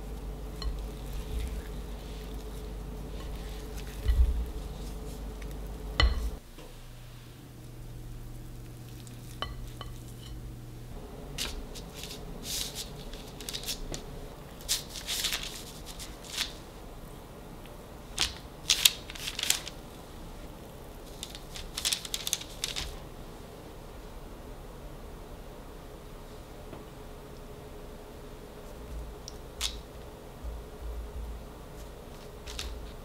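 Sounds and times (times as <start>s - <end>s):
low steady hum: 0.0s - 33.0s
spoon scraping dough onto paper: 0.1s - 6.4s, 11.4s - 14.0s.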